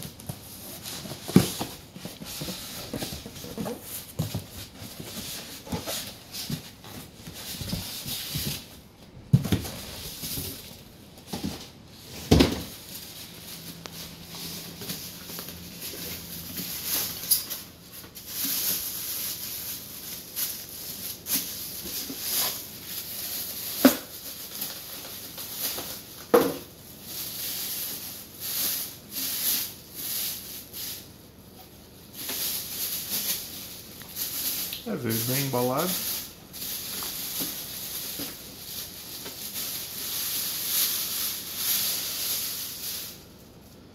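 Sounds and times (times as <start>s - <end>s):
plastic bag crinkling: 12.0s - 31.1s, 32.1s - 43.3s.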